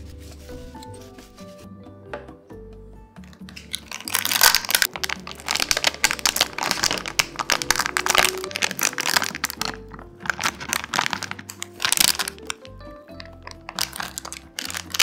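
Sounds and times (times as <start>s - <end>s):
soft background music: 0.0s - 15.0s
parchment paper crinkling: 3.6s - 15.0s.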